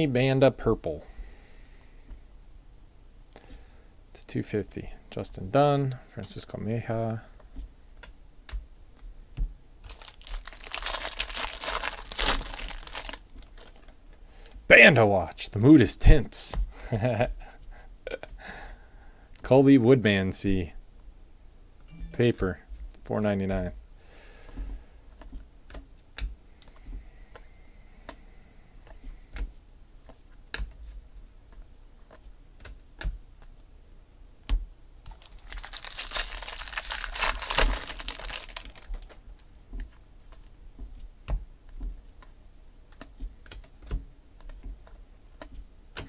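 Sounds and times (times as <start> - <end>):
paper rustling: 35.1 - 39.2.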